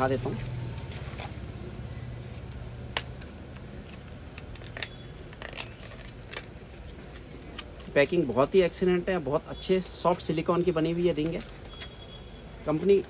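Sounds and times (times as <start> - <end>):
package clicks and rustles: 0.3 - 8.8, 11.0 - 12.0.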